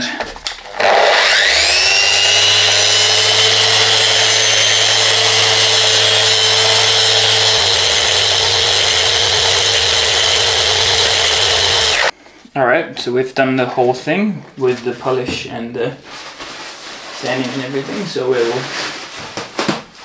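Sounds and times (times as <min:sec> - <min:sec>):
power tool whining: 0:00.6 - 0:12.2.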